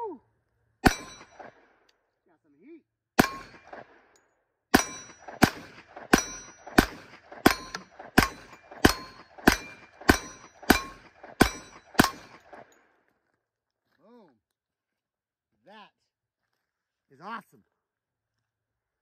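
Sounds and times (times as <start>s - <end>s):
metallic ring: 0.8s - 1.4s, 4.8s - 5.3s, 6.2s - 6.7s, 7.5s - 12.4s
pistol shots: 0.8s - 1.8s, 3.2s - 12.8s.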